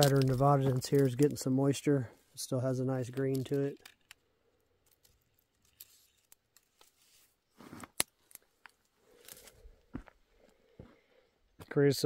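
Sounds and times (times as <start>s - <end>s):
dry stems clicking and rustling: 0.0s - 1.6s, 2.6s - 7.0s, 7.8s - 9.6s
stems crunching: 0.0s - 1.8s, 2.4s - 4.2s, 4.8s - 9.6s.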